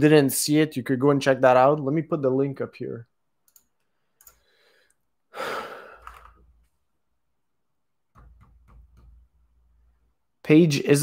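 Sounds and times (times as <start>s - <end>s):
faint clicks: 3.4s - 5.0s
man sighing: 5.3s - 6.5s.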